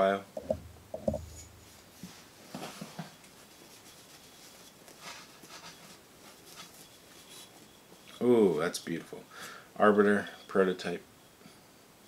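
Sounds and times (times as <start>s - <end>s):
soft fabric rustling: 1.1s - 9.3s.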